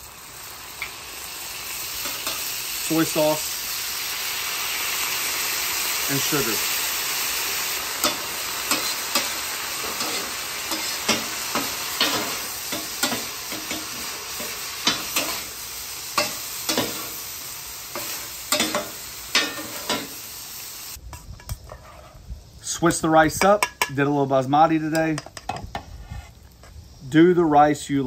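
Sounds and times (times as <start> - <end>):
food sizzling on griddle: 0.0 - 28.0
blades scraping and clacking on griddle: 0.4 - 20.4, 21.1 - 22.2.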